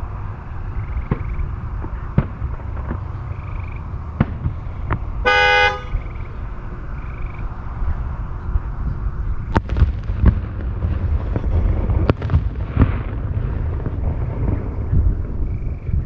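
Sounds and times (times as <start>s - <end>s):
distant fireworks bangs: 0.0s - 6.3s, 9.4s - 16.0s
low rumble: 0.0s - 16.0s
car horn honk: 5.2s - 6.1s.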